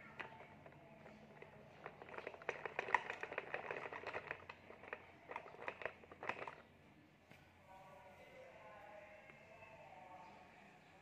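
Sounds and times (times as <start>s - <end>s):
plastic toy parts clattering: 0.0s - 6.6s.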